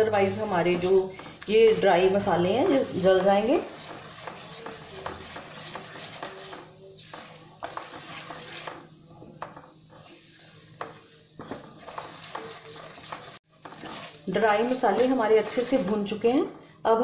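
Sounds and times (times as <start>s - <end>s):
spatula scraping and knocking pan: 0.0s - 16.3s
seeds sizzling in hot oil: 2.6s - 16.2s.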